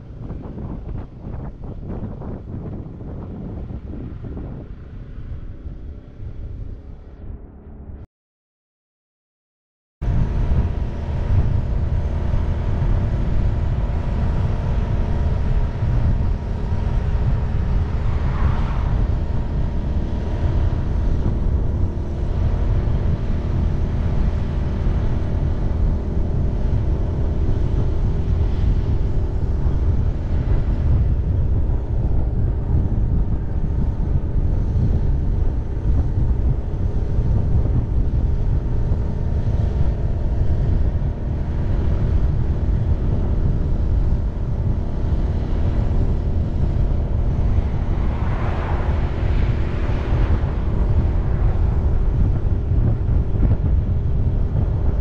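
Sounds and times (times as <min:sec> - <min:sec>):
vehicle engine and road noise: 0:00.0 - 0:08.1, 0:10.0 - 0:55.0.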